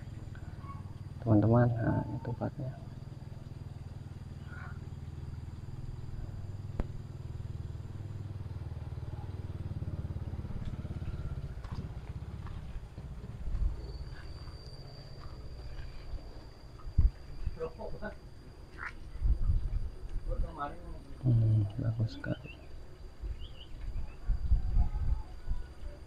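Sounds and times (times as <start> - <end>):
small engine running: 0.0 - 15.5.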